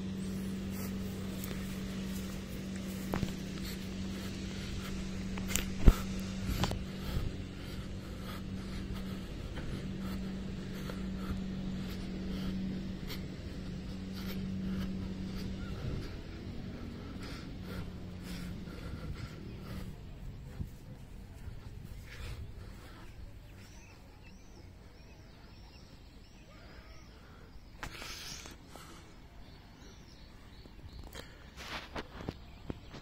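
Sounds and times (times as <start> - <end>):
grass trimmer droning: 0.0 - 24.4.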